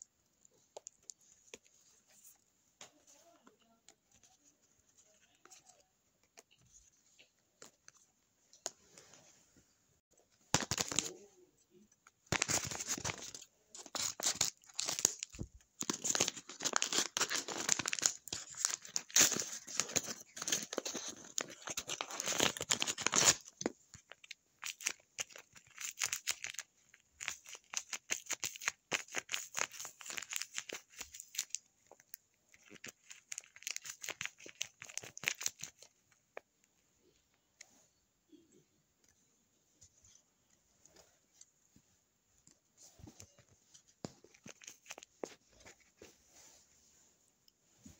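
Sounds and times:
paper rustling and crinkling: 0:12.3 - 0:35.9, 0:42.8 - 0:46.2.

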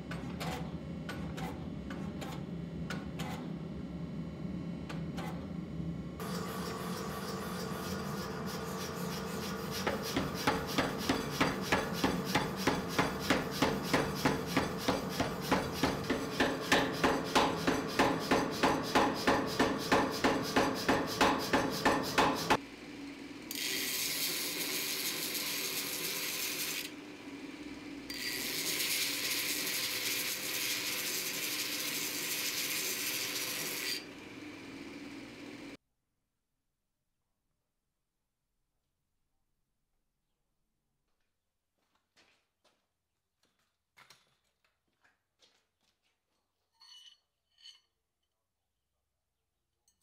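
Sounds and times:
belt grinder grinding steel: 0:06.2 - 0:22.6, 0:23.5 - 0:27.0, 0:27.7 - 0:35.1
power hammer striking steel: 0:09.7 - 0:22.6.

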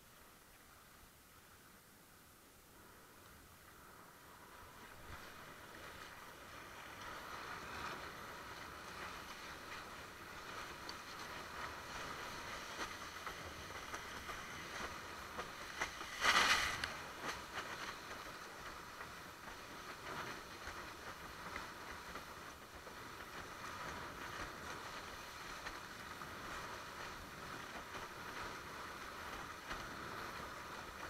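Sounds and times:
water rushing past board: 0:04.9 - 0:18.2.

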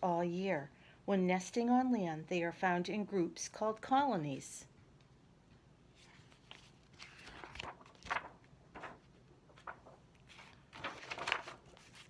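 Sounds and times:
book pages rustling: 0:05.9 - 0:12.0.

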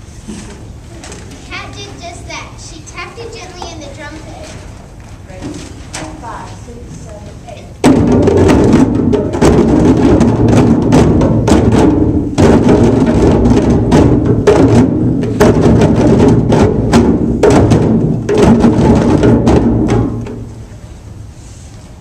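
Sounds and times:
hand drums in fast rhythm: 0:07.8 - 0:20.5.

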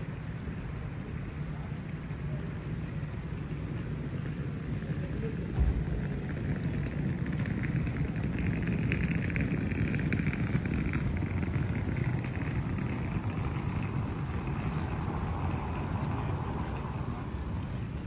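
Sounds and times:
rain on wet street: 0:00.0 - 0:18.0.

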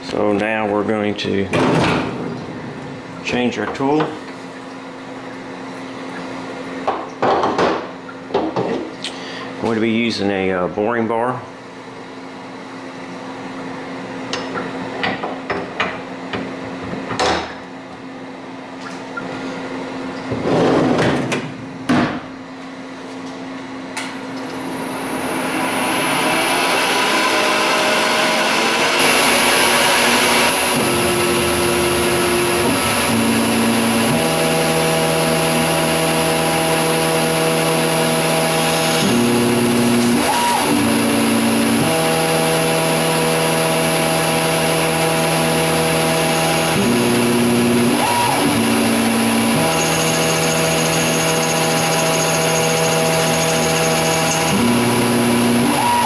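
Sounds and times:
stepper motors humming: 0:24.0 - 0:56.0
lathe whine: 0:24.4 - 0:56.0.

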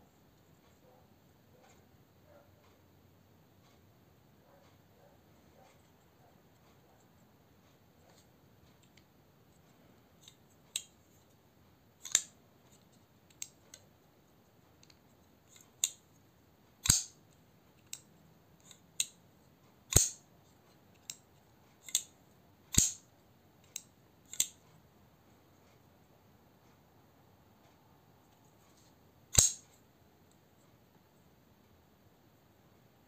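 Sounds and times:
folding knife metallic clicks: 0:12.0 - 0:12.3, 0:16.8 - 0:17.2, 0:19.9 - 0:20.2, 0:21.8 - 0:22.1, 0:22.7 - 0:23.0, 0:23.7 - 0:24.6, 0:29.3 - 0:29.7.

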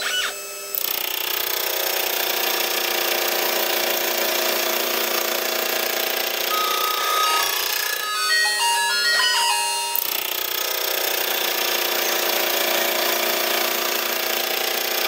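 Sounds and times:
gear cutter cutting noise: 0:00.0 - 0:08.4
milling spindle whine: 0:05.3 - 0:10.3
tones stepping in pitch: 0:06.5 - 0:10.2.

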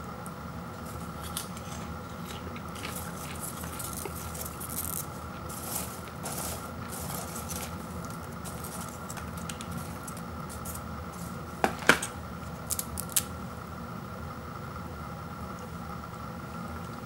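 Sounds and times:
popcorn rustling in a bowl: 0:00.8 - 0:13.3.

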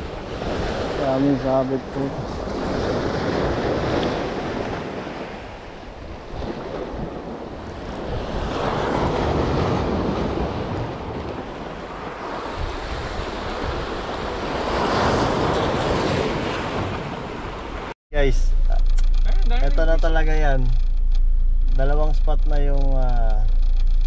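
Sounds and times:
wind buffeting microphone: 0:00.0 - 0:17.9
sea waves washing ashore: 0:00.0 - 0:18.0.

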